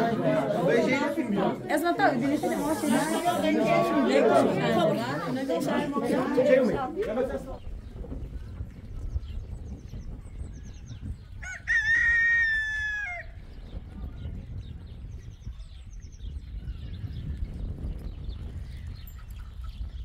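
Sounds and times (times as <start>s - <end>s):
small birds chirping: 7.1s - 11.7s, 13.0s - 20.0s
rooster crowing: 11.4s - 13.3s.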